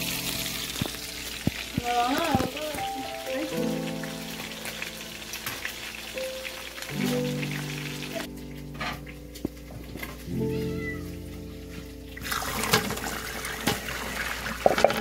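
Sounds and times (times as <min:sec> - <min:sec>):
water boiling in a pot: 0:00.0 - 0:08.3, 0:12.1 - 0:15.0
background music with sustained notes: 0:00.0 - 0:14.6.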